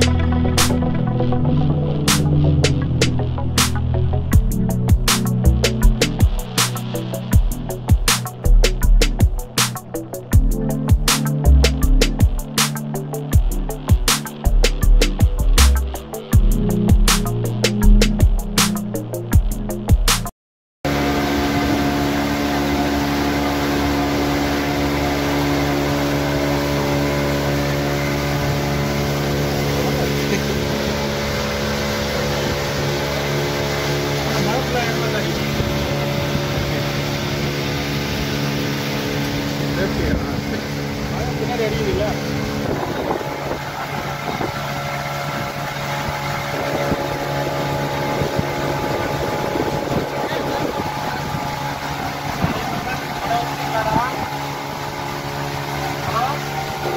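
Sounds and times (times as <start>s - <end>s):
water churning in wake: 0.0s - 18.9s, 20.9s - 56.9s
outboard motor running: 0.0s - 20.2s, 20.9s - 56.9s.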